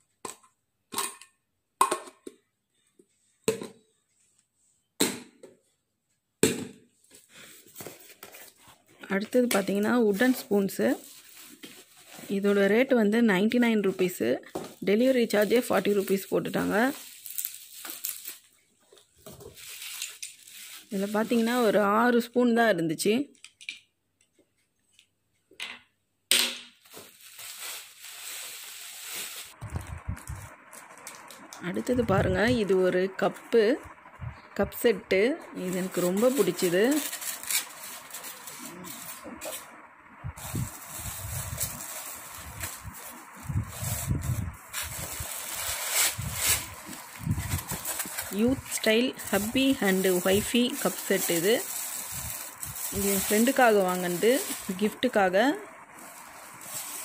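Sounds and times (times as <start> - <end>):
bubble wrap crinkling: 9.6 - 13.0, 14.7 - 21.7, 26.8 - 32.8, 35.6 - 39.8, 40.4 - 57.0.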